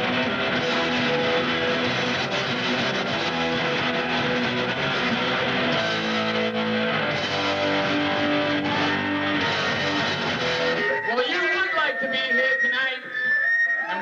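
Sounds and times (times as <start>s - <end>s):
punk band playing live: 0.0s - 11.1s.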